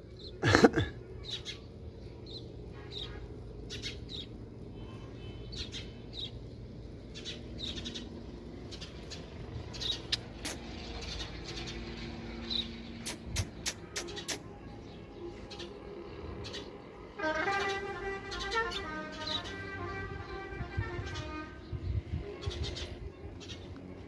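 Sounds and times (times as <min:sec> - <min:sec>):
small birds chirping: 0:00.0 - 0:24.0
sharp clicks: 0:13.0 - 0:14.5.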